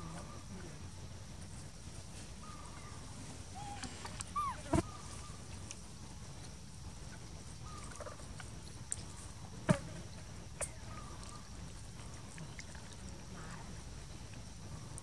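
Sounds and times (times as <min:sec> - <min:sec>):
steady low rumble: 0:00.0 - 0:15.0
faint chirping animal calls: 0:02.2 - 0:05.6, 0:07.6 - 0:09.3, 0:10.6 - 0:13.8.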